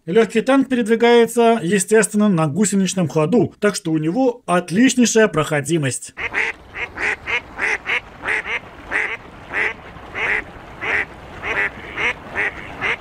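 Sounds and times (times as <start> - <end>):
duck quacking: 6.2 - 13.0.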